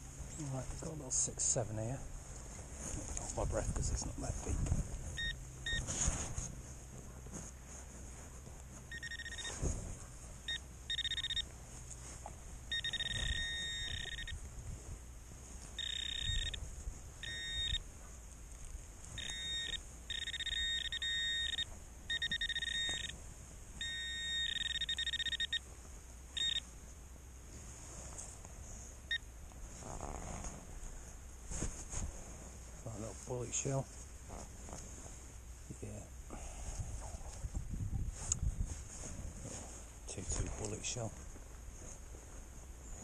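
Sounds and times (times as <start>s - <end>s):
metal detector tone: 5.1s - 6.2s, 8.8s - 11.6s, 12.6s - 14.5s, 15.6s - 17.9s, 19.1s - 23.2s, 23.8s - 25.7s, 26.3s - 26.7s.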